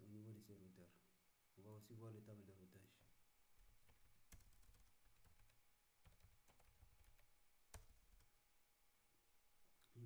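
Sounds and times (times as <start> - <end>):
faint typing on a keyboard: 2.8 - 8.4.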